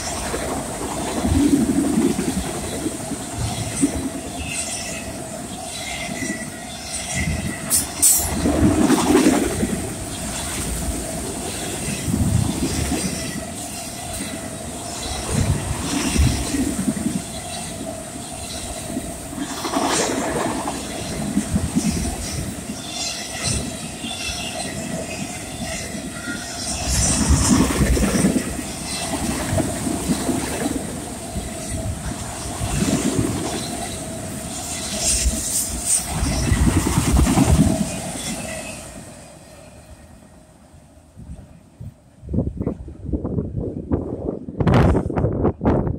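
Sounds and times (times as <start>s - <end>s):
train wheels clattering over rail joints: 5.7s - 17.8s.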